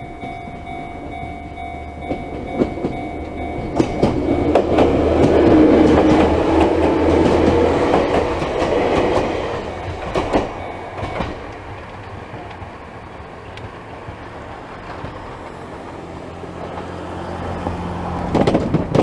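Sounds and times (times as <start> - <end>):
level crossing warning bell: 0.0 - 12.5
train wheels clacking over rail joints: 0.2 - 19.0.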